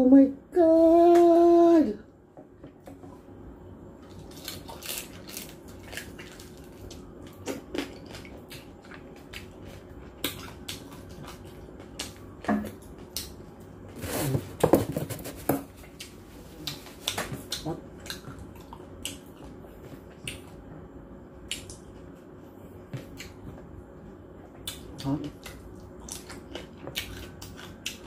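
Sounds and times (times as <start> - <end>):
crispy skin crunching: 4.0 - 12.2.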